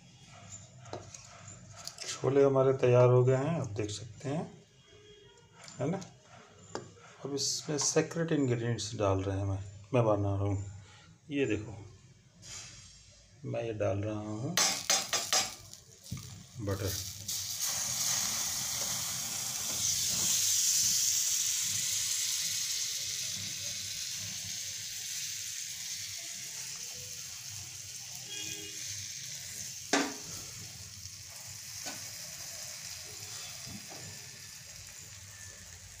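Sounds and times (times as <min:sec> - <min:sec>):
butter sizzling in a ladle: 0:14.6 - 0:36.0.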